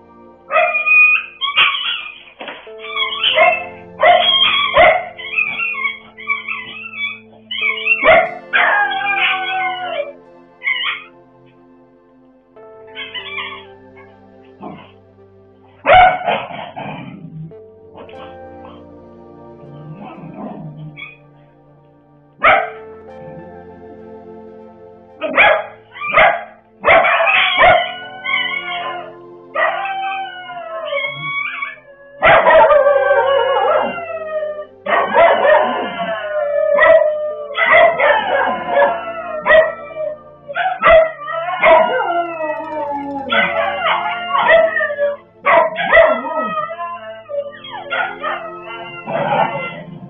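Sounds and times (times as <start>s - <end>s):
faint background music: 0.0s - 50.0s
dogs barking: 0.4s - 11.1s, 12.9s - 14.9s, 15.8s - 18.9s, 22.4s - 22.8s, 25.2s - 50.0s
puppy yelping in pain: 2.8s - 11.1s, 29.6s - 32.7s, 40.6s - 50.0s.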